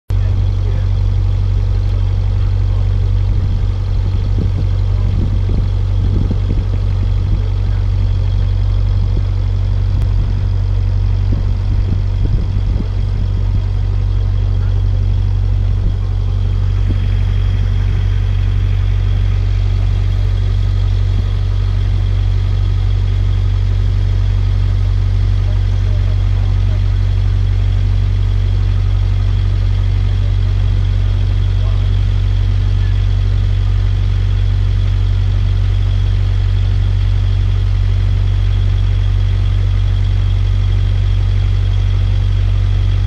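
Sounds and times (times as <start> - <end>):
boat engine droning: 0.1 - 43.0.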